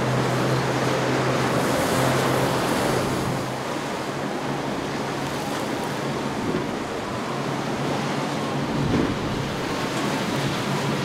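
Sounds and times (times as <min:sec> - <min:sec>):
boat engine drone: 0:00.0 - 0:11.0
waves washing: 0:00.0 - 0:11.0
wind noise on microphone: 0:08.5 - 0:11.0.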